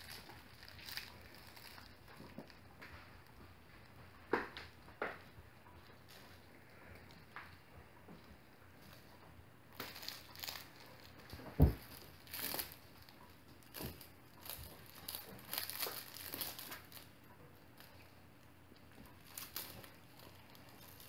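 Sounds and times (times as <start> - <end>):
puppies crunching dry kibble: 0.0 - 3.9, 9.7 - 21.0.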